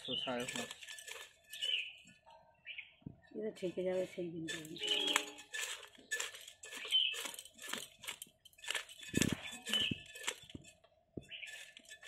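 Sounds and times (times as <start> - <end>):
scales crackling off: 0.0 - 2.0
knife scraping fish scales: 0.4 - 1.9, 3.9 - 10.8, 11.4 - 12.0.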